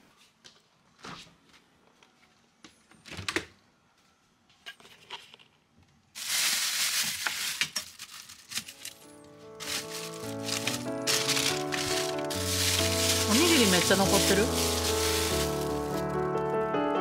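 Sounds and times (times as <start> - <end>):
plastic bags crinkling: 6.2 - 16.3.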